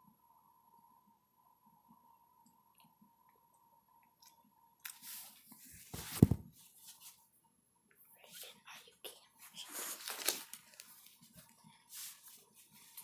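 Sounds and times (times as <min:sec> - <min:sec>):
rustling: 0:09.5 - 0:13.0.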